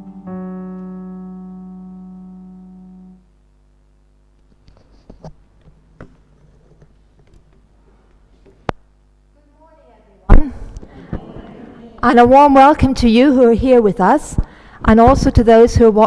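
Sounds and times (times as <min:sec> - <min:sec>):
electric piano chord: 0:00.0 - 0:03.3.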